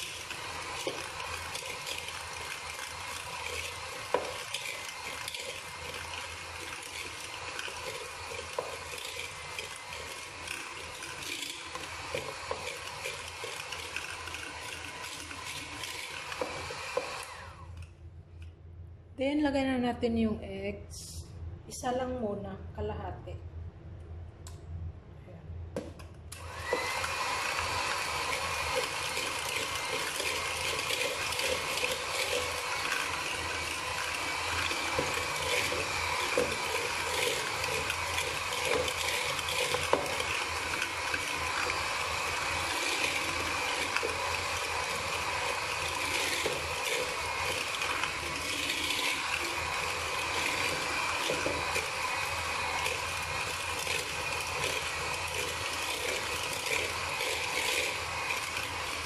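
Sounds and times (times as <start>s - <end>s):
hand mixer motor whine: 0.0s - 17.8s, 26.4s - 59.0s.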